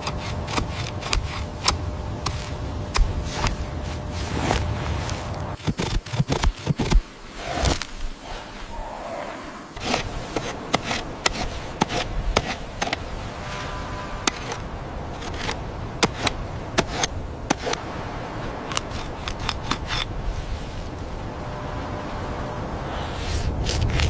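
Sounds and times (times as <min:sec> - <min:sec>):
stone tools scraping bone: 0:00.0 - 0:02.5, 0:09.8 - 0:13.0, 0:14.2 - 0:14.6, 0:15.2 - 0:17.8, 0:18.7 - 0:20.1
low steady rumble: 0:00.0 - 0:06.1, 0:07.0 - 0:24.0.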